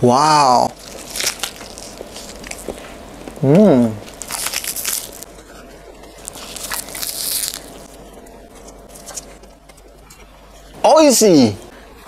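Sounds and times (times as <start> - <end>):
bites and chewing: 0.7 - 3.4, 4.0 - 5.4, 6.0 - 8.0
crackly crunch: 0.7 - 3.4, 4.0 - 10.3.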